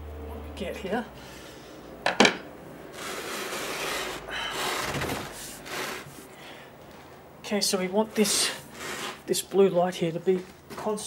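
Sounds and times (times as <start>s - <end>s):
speaker cabinet scraping on workbench: 2.9s - 6.2s.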